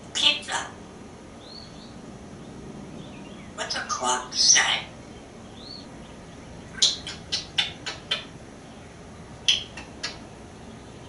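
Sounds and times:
parrot chirps and clicks: 6.7s - 8.3s, 9.5s - 10.3s.

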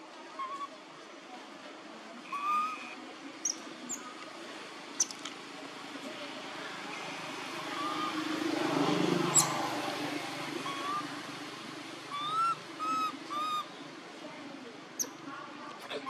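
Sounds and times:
baby macaque crying: 2.3s - 2.9s, 10.6s - 11.2s, 12.1s - 13.7s.

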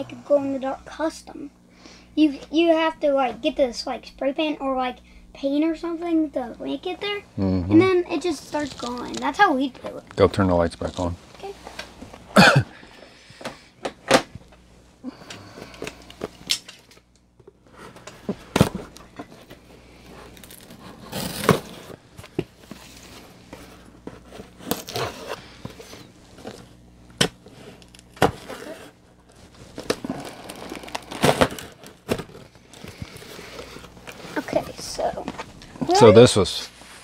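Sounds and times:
cardboard rustling and scraping: 8.1s - 12.2s, 17.6s - 26.7s, 27.4s - 35.6s
packing tape tearing: 8.3s - 9.4s, 20.2s - 22.0s, 24.4s - 34.4s.

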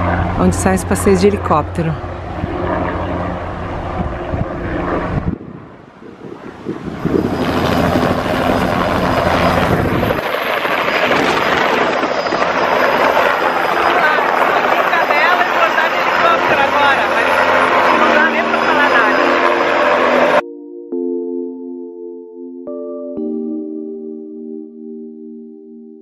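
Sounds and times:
wind buffeting microphone: 0.0s - 18.6s
helicopter rotor and engine noise: 0.0s - 20.4s
vehicle engine humming: 0.0s - 20.4s.

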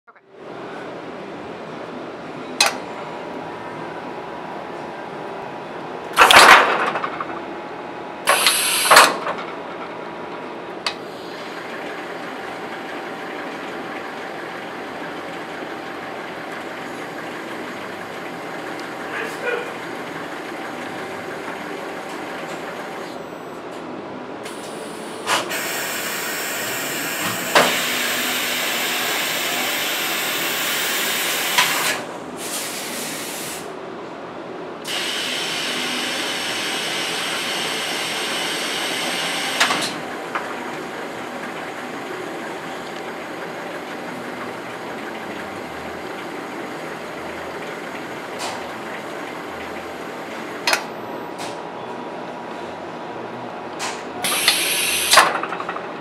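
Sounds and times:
machine hum: 0.3s - 23.3s
loud air hiss: 8.3s - 9.1s, 24.5s - 33.8s, 34.9s - 39.6s, 54.2s - 55.2s.

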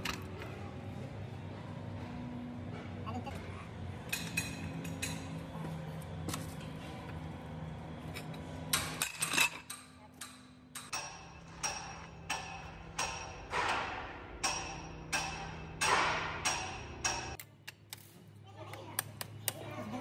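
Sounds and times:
steady machine hum: 0.0s - 17.4s
hammer striking metal: 8.7s - 17.4s.

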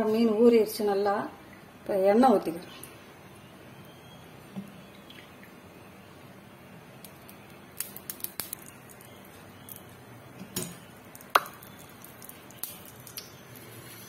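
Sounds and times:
light clicks and crackles: 7.0s - 14.0s.

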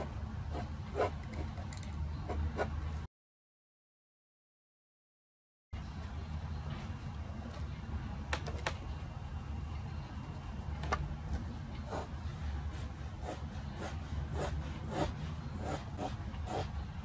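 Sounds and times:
pencil scratching on paper: 0.0s - 1.5s, 2.2s - 2.8s, 11.8s - 16.8s
steady low hum: 5.8s - 17.0s.

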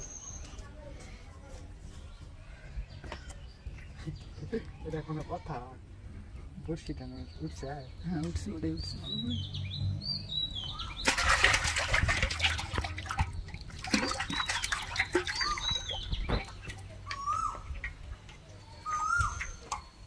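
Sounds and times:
birds chirping: 1.9s - 20.0s
fish splashing in water: 10.7s - 20.0s.

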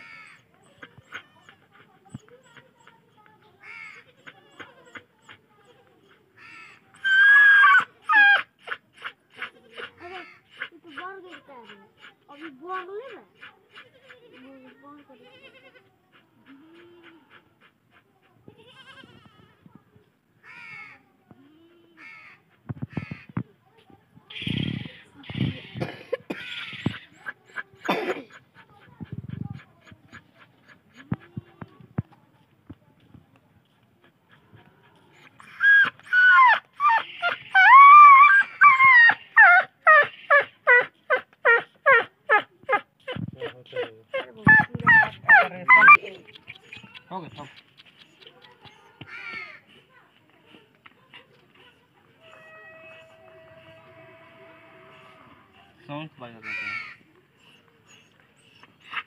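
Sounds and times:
dog whining and yelping: 6.9s - 15.1s, 34.3s - 49.4s, 57.4s - 59.0s.

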